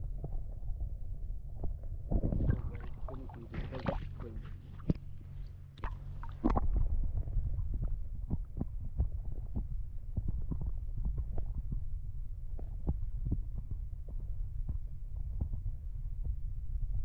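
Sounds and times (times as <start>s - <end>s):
underwater rumble: 0.0s - 17.0s
water sloshing: 2.1s - 6.6s.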